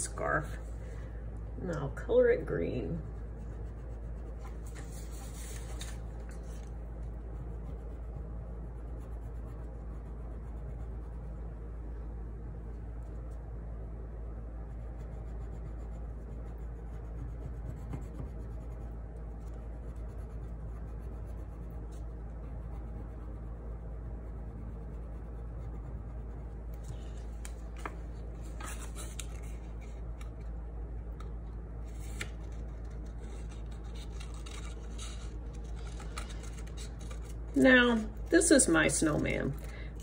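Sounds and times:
steady low hum: 0.0s - 40.0s
scissors snipping paper: 32.2s - 37.4s.

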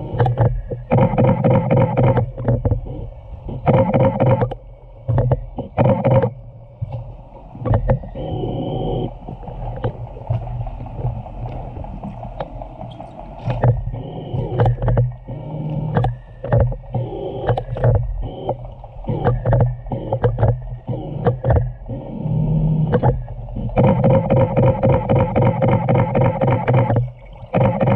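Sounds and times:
boat engine hum underwater: 0.0s - 27.9s
killer whale calls underwater: 12.8s - 27.9s.

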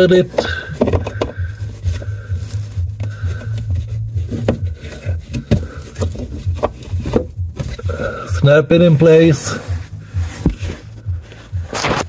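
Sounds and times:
background music with low beat: 0.0s - 12.0s
plastic clicks and knocks: 0.4s - 1.4s.

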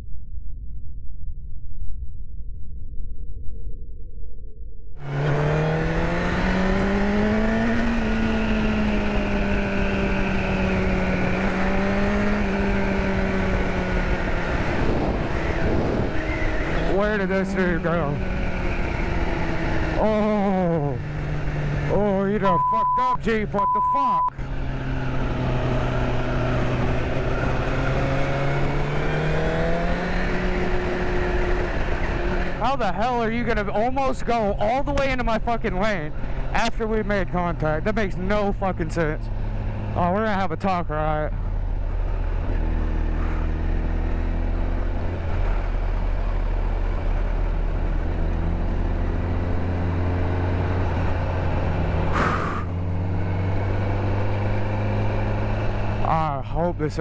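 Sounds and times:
motorcycle engine accelerating: 5.0s - 57.0s
wind and road noise: 5.0s - 57.0s
wind noise: 12.9s - 17.0s.

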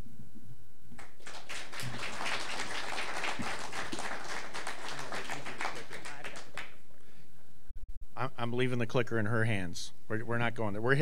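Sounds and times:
audience applauding: 1.0s - 6.8s.

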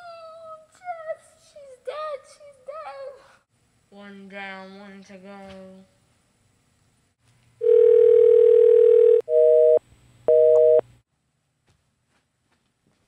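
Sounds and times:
phone dial tone: 7.6s - 10.8s
busy signal beeps: 7.7s - 10.8s.

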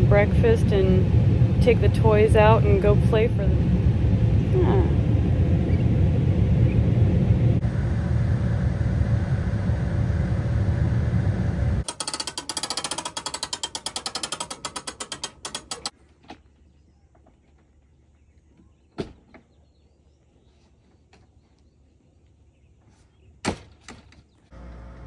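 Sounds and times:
vehicle rumbling in motion: 0.0s - 11.9s, 24.5s - 25.0s
ratchet-like clicks: 11.8s - 15.9s.

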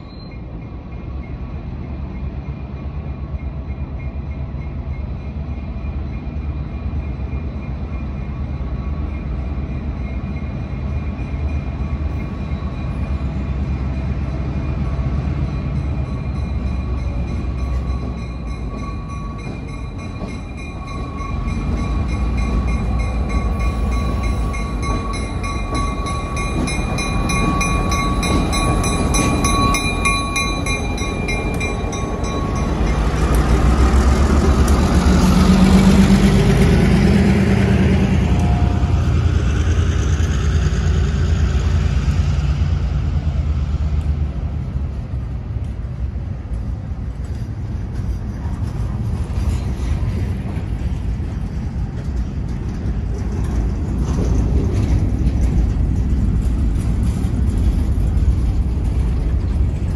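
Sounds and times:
diesel locomotive engine: 0.0s - 59.9s
wheel and rail noise: 0.0s - 59.9s
high-pitched ringing tones: 3.4s - 33.2s.

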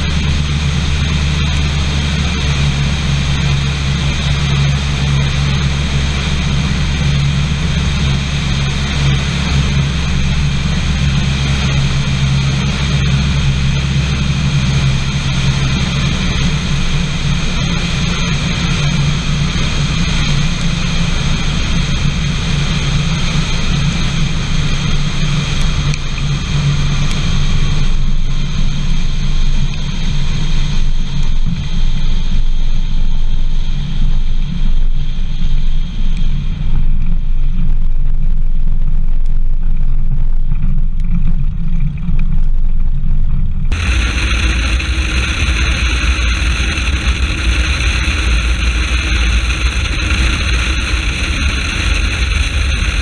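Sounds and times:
aircraft engine drone: 0.0s - 39.7s, 43.2s - 53.0s
wind rush: 43.6s - 53.0s.

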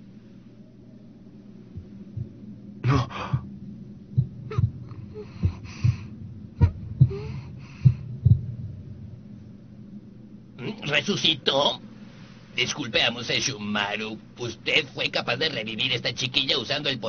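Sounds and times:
soft breaths: 0.0s - 15.6s
low steady drone: 0.0s - 17.0s
heartbeat double thumps: 1.6s - 10.1s.

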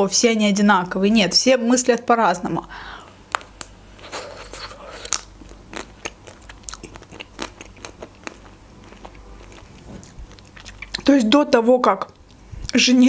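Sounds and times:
chewing: 3.3s - 11.1s.

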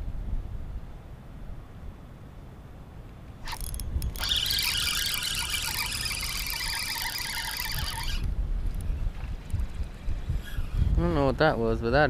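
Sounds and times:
fishing reel whirring: 3.4s - 11.1s.

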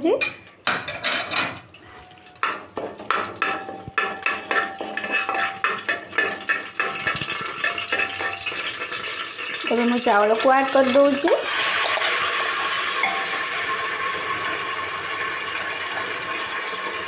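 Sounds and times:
spoon scraping a metal pot: 2.2s - 12.1s.

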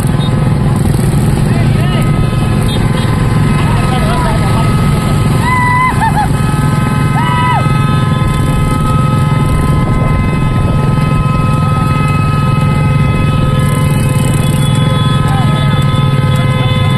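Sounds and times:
motorcycle engines running: 0.0s - 16.9s
brief high tone: 1.5s - 16.9s
wind rumble on microphone: 8.2s - 12.2s.

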